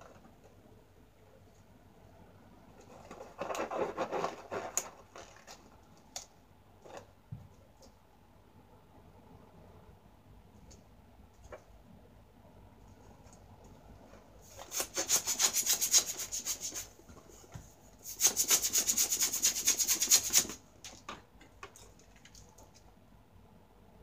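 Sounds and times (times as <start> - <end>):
hands rubbing balloon: 14.5 - 17.0, 18.0 - 20.6.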